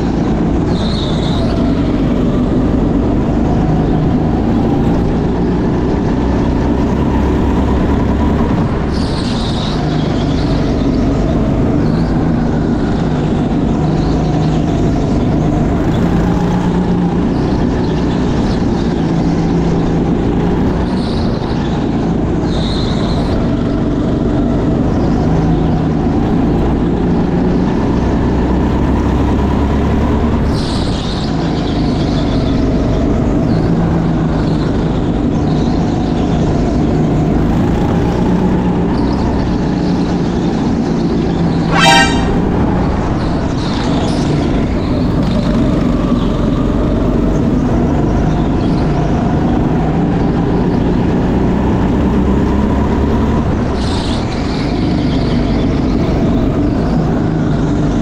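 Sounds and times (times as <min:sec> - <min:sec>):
kart engine revving: 0:00.0 - 0:58.0
short high squeals: 0:41.6 - 0:42.7.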